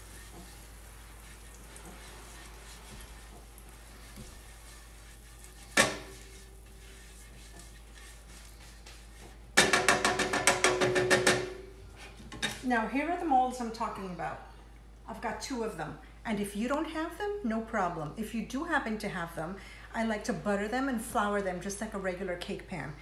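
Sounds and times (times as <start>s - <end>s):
butter sizzling in a pan: 0.0s - 9.6s.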